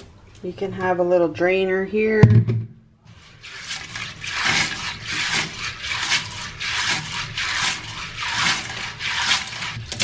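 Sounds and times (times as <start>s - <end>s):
hands scrubbing nuts in colander: 3.1s - 10.0s.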